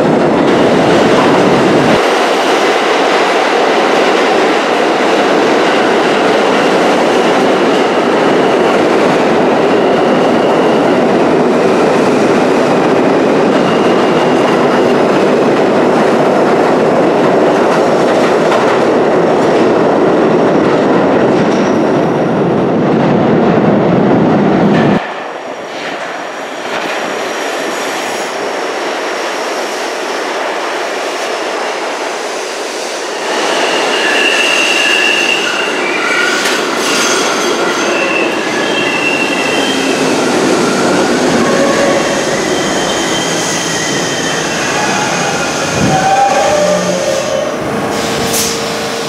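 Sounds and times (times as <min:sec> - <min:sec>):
subway train rumbling on rails: 0:00.0 - 0:49.0
steel wheels squealing: 0:33.5 - 0:48.8.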